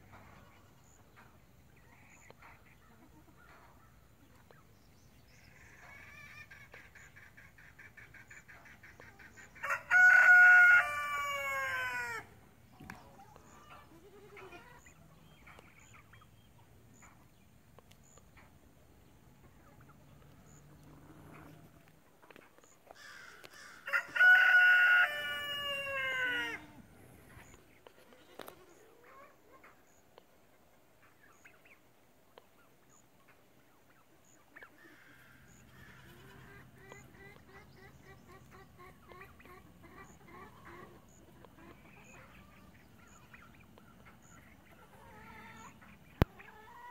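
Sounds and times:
farm birds calling: 0.0s - 46.9s
turkeys clucking and chirping: 0.0s - 46.9s
rooster crowing: 9.6s - 12.3s, 23.5s - 26.6s.

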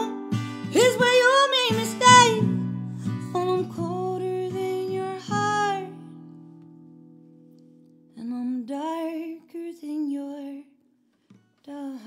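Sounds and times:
woman singing: 0.0s - 6.2s, 8.1s - 10.8s, 11.6s - 12.0s
acoustic guitar chord ringing: 0.0s - 7.4s.

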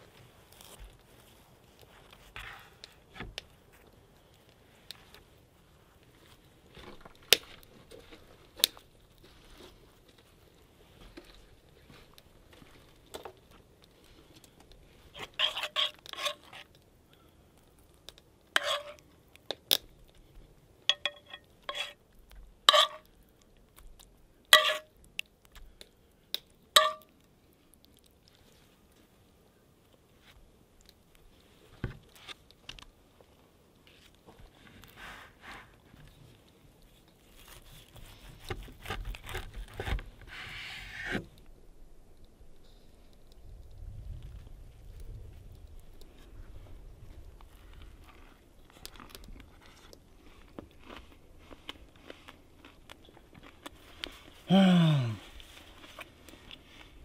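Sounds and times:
metal spoon clinking on skillet: 20.9s - 22.0s, 26.8s - 27.1s.

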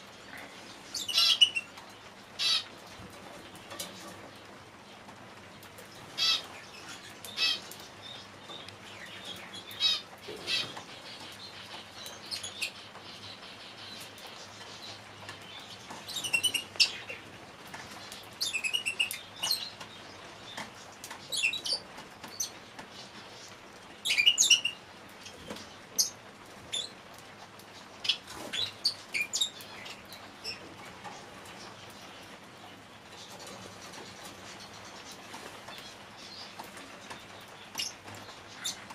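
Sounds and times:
canaries chirping and trilling: 0.1s - 38.9s.

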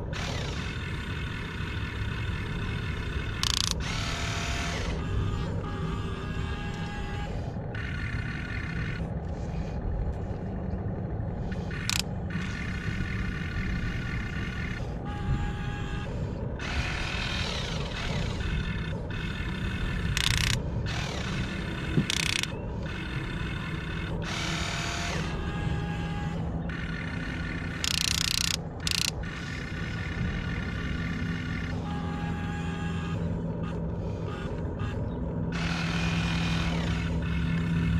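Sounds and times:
electric gear motors whining: 0.0s - 37.9s
steady low hum: 0.0s - 37.9s
sharp click: 27.7s - 29.2s.

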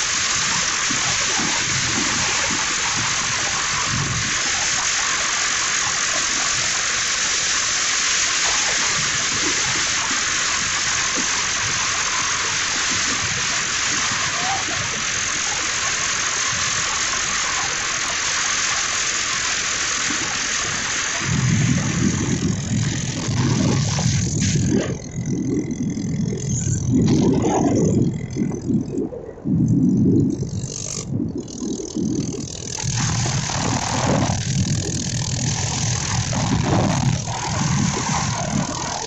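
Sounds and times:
wind buffeting microphone: 0.0s - 6.8s, 20.0s - 39.0s
wind and road noise hiss: 0.0s - 39.0s.

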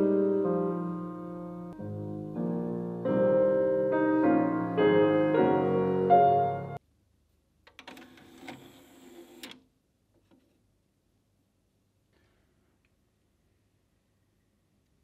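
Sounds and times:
piano music: 0.0s - 6.8s
disc tray motor whirring: 8.0s - 9.6s.

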